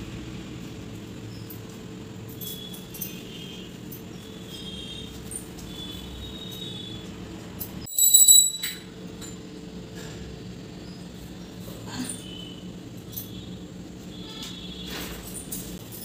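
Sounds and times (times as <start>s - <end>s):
high metallic jingle: 2.3s - 6.8s, 7.6s - 9.4s.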